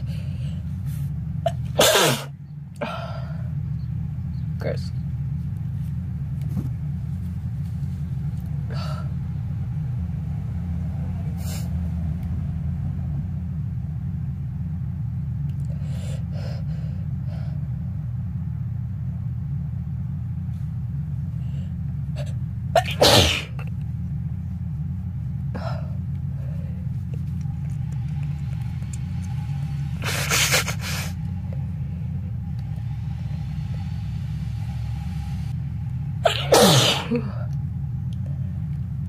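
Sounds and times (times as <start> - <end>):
steady low hum: 0.0 - 39.0
person sneezing: 1.5 - 2.3, 22.8 - 23.6, 36.2 - 37.4.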